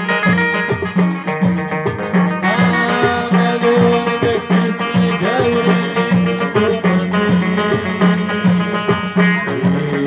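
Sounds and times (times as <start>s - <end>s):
frame and hand drums: 0.0s - 10.0s
plucked banjo and strings: 0.0s - 10.0s
person singing: 2.4s - 10.0s.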